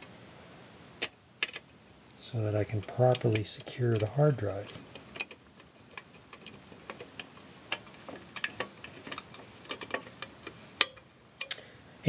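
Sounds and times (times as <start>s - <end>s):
screwdriver clicking: 2.8s - 11.6s.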